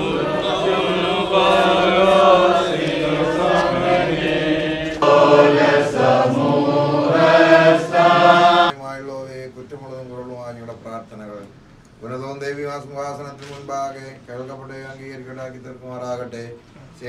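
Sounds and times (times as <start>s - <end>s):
voices chanting a hymn: 0.0s - 8.8s.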